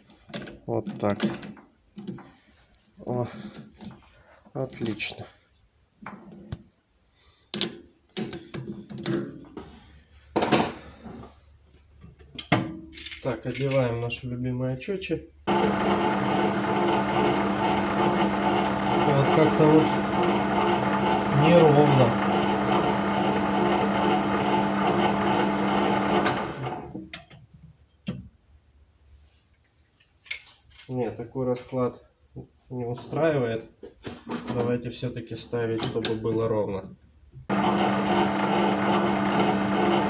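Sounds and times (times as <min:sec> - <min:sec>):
metal lathe motor and gear whine: 0:15.5 - 0:26.8, 0:37.5 - 0:40.0
lathe spinning down: 0:15.5 - 0:26.9, 0:37.5 - 0:40.0.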